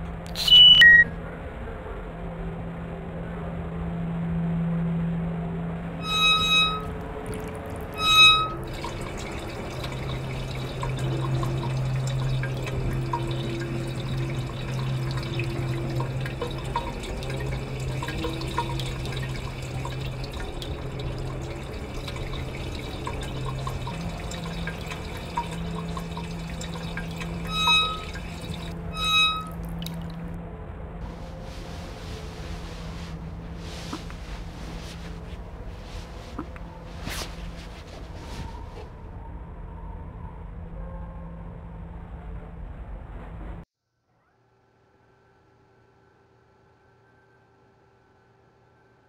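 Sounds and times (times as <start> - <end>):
low steady hum: 0.0 - 43.5
short bright beeps: 0.4 - 1.1
water dripping and trickling: 6.0 - 30.4.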